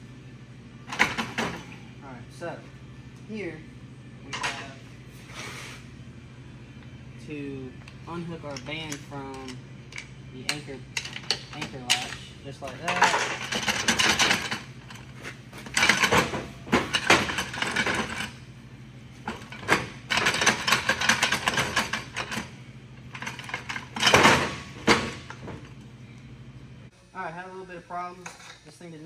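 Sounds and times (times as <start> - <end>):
metal parts clattering and scraping: 8.5 - 18.4, 19.3 - 22.5, 23.1 - 25.6.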